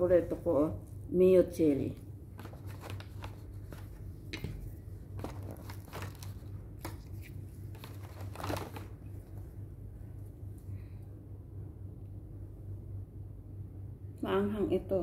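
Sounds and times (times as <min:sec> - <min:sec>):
steady low hum: 0:00.0 - 0:15.0
sandwich wrapper crinkling: 0:02.3 - 0:04.2, 0:05.0 - 0:09.4.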